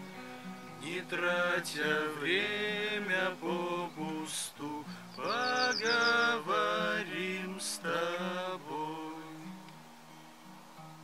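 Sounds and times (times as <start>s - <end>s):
acoustic guitar: 0.0s - 11.0s
man singing: 0.8s - 9.5s.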